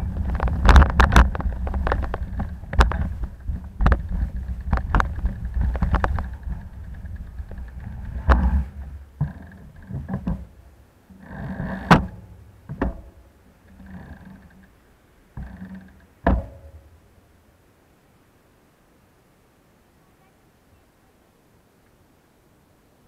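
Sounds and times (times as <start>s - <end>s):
bicycle clicks and rattles: 0.0s - 10.5s
road rumble: 0.0s - 23.0s
wind: 0.0s - 23.0s.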